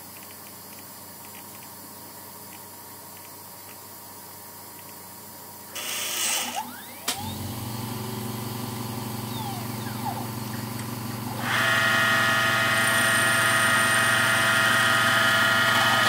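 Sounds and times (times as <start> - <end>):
faint whines rising and falling: 1.3 - 16.0
motor whining: 5.8 - 16.0
low machine hum: 6.6 - 16.0.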